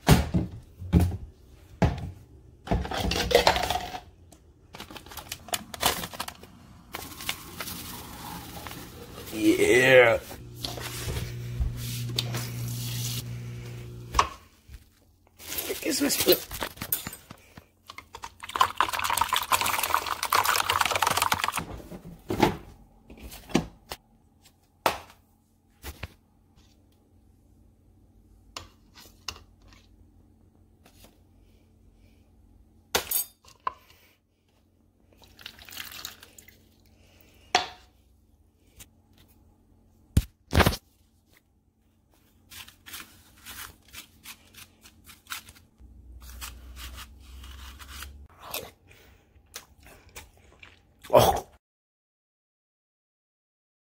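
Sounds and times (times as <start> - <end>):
spoon scraping snow: 10.6 - 13.7.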